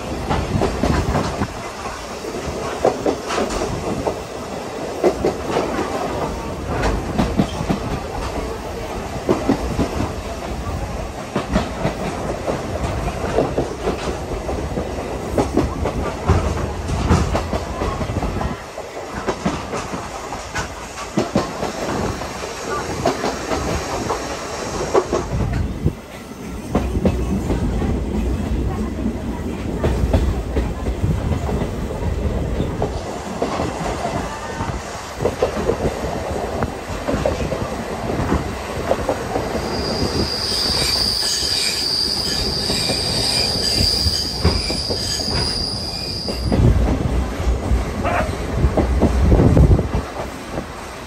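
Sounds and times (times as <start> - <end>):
train wheels rumbling on rails: 0.0 - 51.0
high wheel squeal: 39.6 - 46.6.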